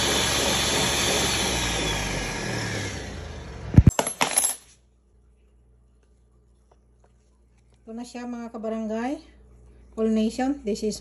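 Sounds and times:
blender motor whirring: 0.0 - 3.8.

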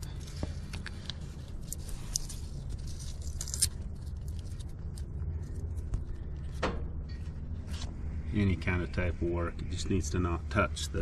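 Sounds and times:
tape crackling and scraping: 0.0 - 8.2
steady low hum: 0.0 - 11.0.

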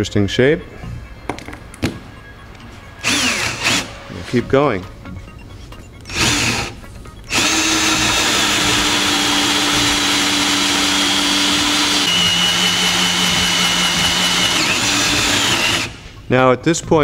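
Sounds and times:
cordless drill with hole saw: 3.0 - 3.9, 6.1 - 16.0.

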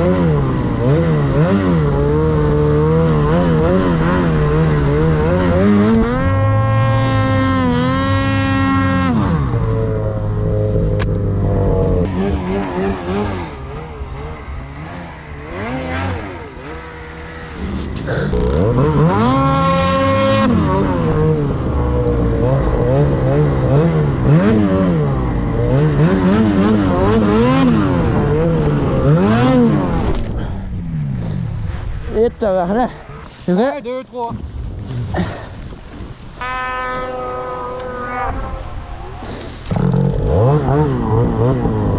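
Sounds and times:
snowmobile engine revving: 0.0 - 35.5, 36.4 - 41.9.

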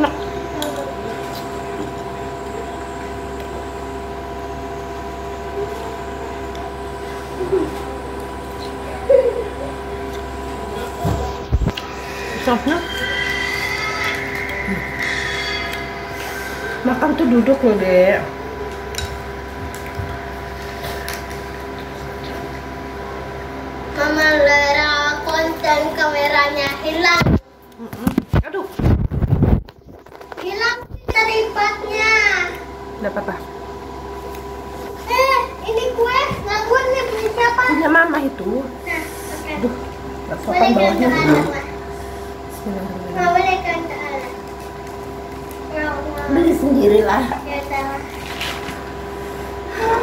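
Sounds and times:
household appliance hum: 0.0 - 50.0
child's high voice: 30.4 - 32.6, 35.0 - 37.9.

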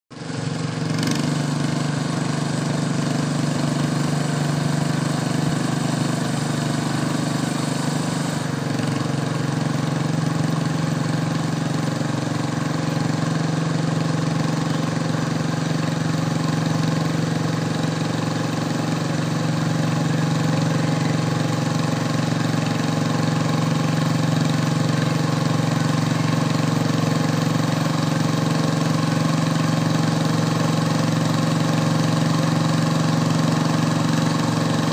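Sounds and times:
tractor engine idling: 0.1 - 34.9.

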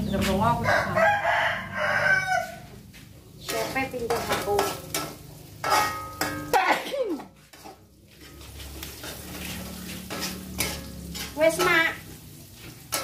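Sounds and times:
metal spatula scraping a wok: 3.4 - 13.0.

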